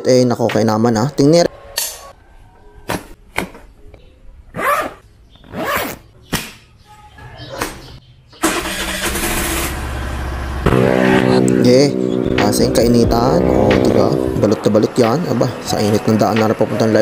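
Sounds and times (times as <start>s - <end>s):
scooter engine starting and running: 8.4s - 12.4s.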